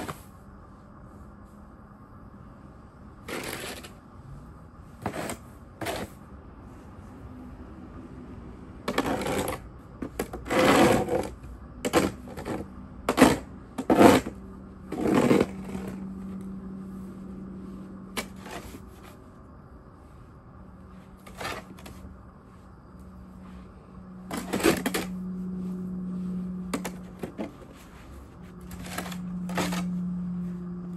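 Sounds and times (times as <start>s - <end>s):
plastic shovel scraping snow: 3.2s - 4.0s, 5.0s - 6.2s, 8.8s - 16.0s, 18.1s - 19.2s, 21.2s - 22.0s, 24.3s - 25.2s, 26.7s - 30.0s.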